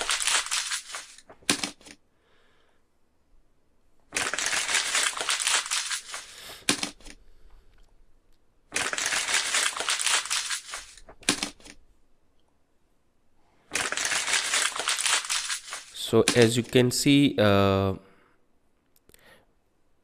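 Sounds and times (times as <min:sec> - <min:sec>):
plastic packaging crinkling: 0:00.0 - 0:02.0, 0:04.1 - 0:07.2, 0:08.7 - 0:11.8, 0:13.7 - 0:16.8.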